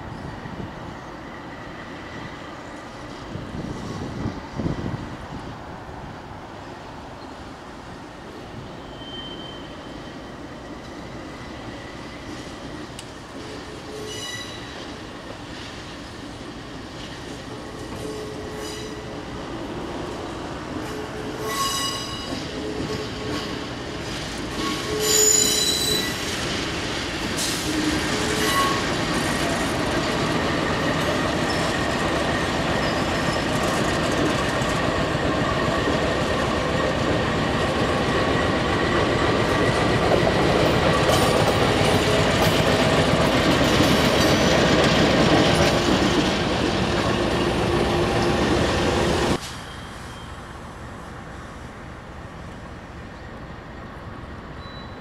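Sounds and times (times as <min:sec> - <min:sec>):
train wheels squealing: 0:00.0 - 0:05.0, 0:08.6 - 0:15.4, 0:17.4 - 0:19.3, 0:20.8 - 0:26.4, 0:27.4 - 0:36.5, 0:47.2 - 0:50.7, 0:54.5 - 0:55.0
diesel locomotive rolling past: 0:00.0 - 0:55.0.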